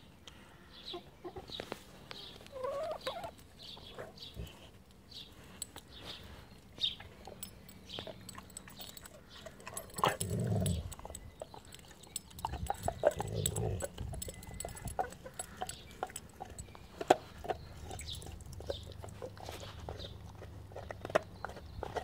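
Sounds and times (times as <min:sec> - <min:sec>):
hens clucking softly: 0:00.9 - 0:03.4
dog chewing on a bone: 0:06.6 - 0:22.0.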